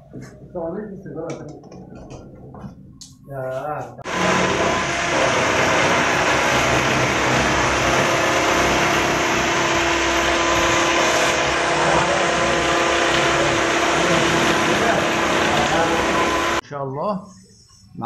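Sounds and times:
loud rushing noise: 4.0s - 16.6s.

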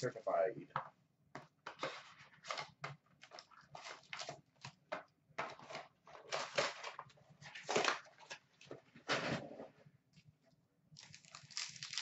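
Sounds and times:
cardboard and foil rustling: 1.7s - 4.8s, 5.4s - 9.4s, 11.0s - 12.0s.

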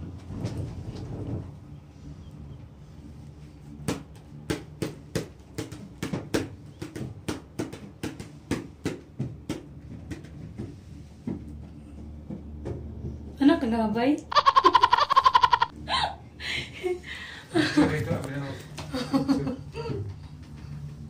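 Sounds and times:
gondola cabin humming on cable: 0.0s - 4.4s, 9.7s - 21.0s.

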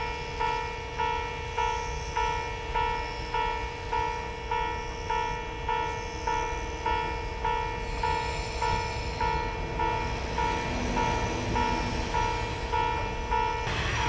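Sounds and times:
level crossing bell clanging: 0.0s - 14.0s
diesel train rumble: 5.4s - 14.0s.

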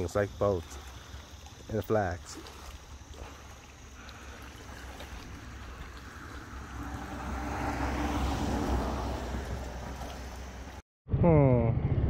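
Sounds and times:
motor vehicle passing by: 3.4s - 10.8s
low wind rumble: 3.7s - 10.8s.

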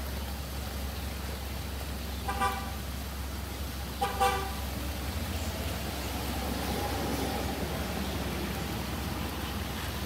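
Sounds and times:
rain on a wet street: 0.0s - 10.0s
car horn honks: 2.2s - 2.8s, 4.0s - 4.6s.

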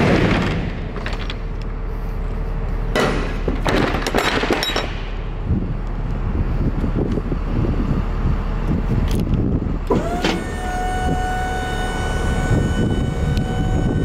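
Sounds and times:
steady low hum: 0.0s - 14.0s
metal door rattling and clanking: 3.0s - 5.2s.

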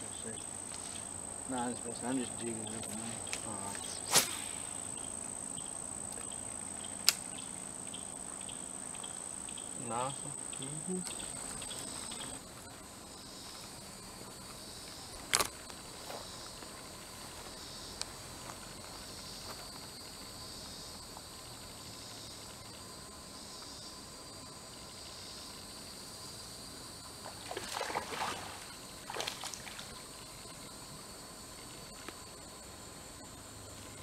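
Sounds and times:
insects buzzing: 0.0s - 34.0s
sharp click: 7.0s - 7.3s
water splashing: 27.3s - 29.9s.

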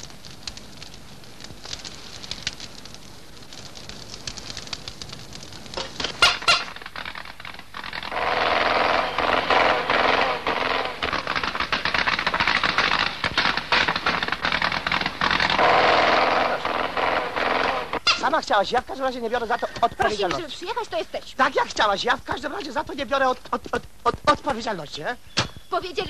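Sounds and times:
fire crackling in a stove: 0.0s - 26.0s
old car engine rattling: 5.8s - 18.4s.

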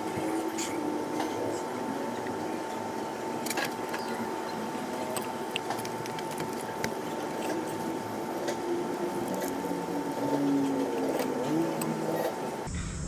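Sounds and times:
steady thin whine: 0.0s - 13.0s
grease squishing under fingers: 3.4s - 12.2s.

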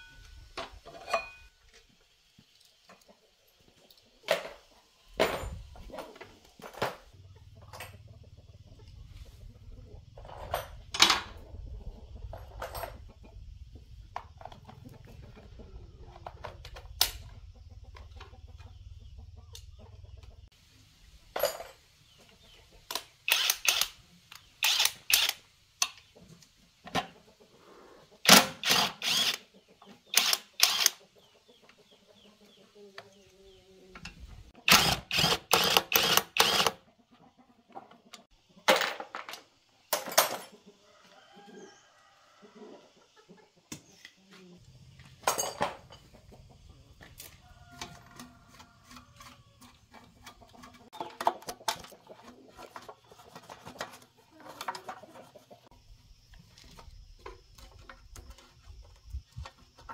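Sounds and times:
chickens clucking: 1.7s - 23.3s, 24.0s - 24.6s, 25.4s - 59.9s.

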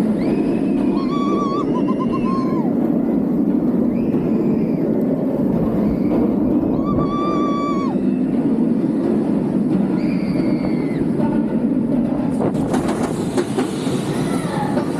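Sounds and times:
riders whooping: 0.0s - 3.0s, 3.7s - 8.9s, 9.8s - 11.2s
roller coaster rumbling on track: 0.0s - 14.9s
rushing air: 0.0s - 14.9s.

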